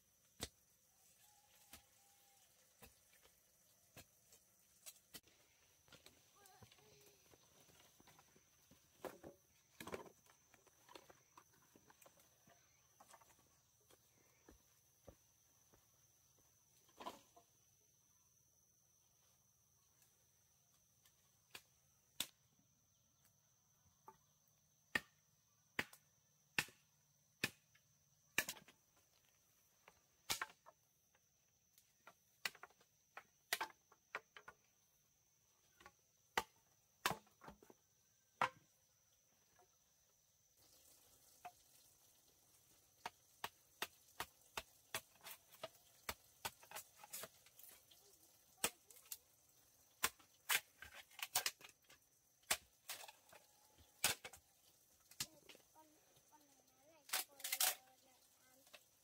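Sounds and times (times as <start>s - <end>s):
machete chopping bamboo: 24.9s - 25.2s, 25.8s - 26.0s, 26.6s - 26.8s, 30.2s - 30.6s, 36.4s - 37.3s, 52.4s - 53.1s, 54.0s - 54.4s.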